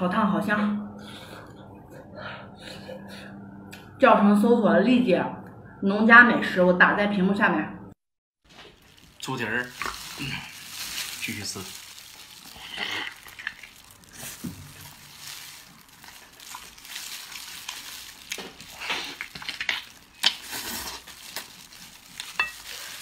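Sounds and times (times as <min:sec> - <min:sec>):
wet chewing and slurping: 0:08.5 - 0:23.0.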